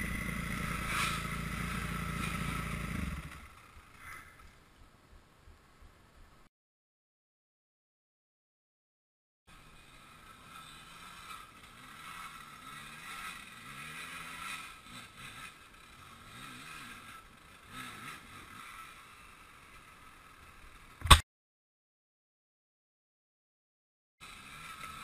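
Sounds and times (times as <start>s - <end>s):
faint dirt bike engine revving: 0.0s - 6.3s, 9.5s - 21.2s, 24.2s - 25.0s
sharp knock: 21.0s - 21.2s.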